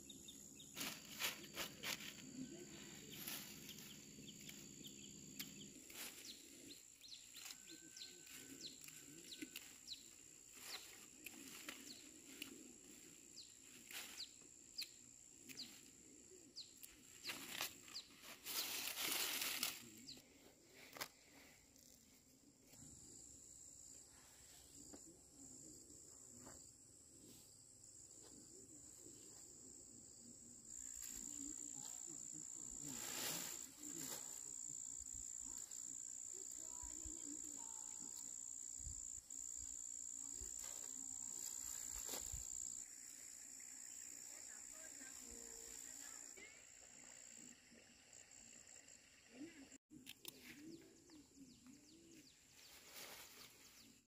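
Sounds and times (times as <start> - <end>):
insects chirring: 0.0 - 54.0
plants rustling and snapping: 16.8 - 19.9.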